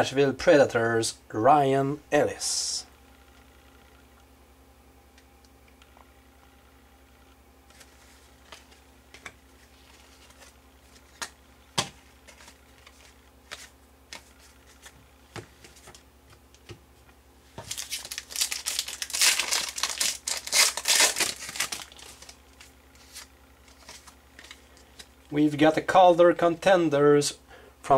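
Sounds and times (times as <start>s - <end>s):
cards clicking and tapping: 10.3s - 16.8s
foil wrapper tearing and crinkling: 17.6s - 25.1s.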